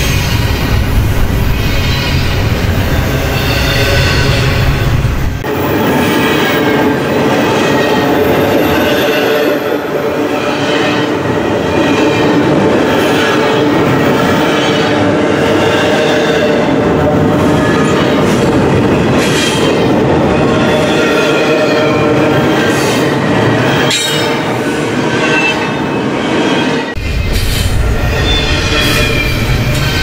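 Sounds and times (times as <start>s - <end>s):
high wheel squeal: 0.0s - 5.2s, 20.6s - 30.0s
train wheels rolling on rail: 0.0s - 30.0s.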